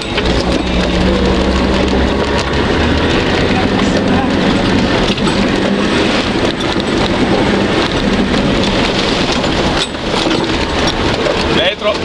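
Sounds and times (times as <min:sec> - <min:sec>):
engine running: 0:00.0 - 0:12.0
muddy water spraying against vehicle: 0:00.0 - 0:12.0.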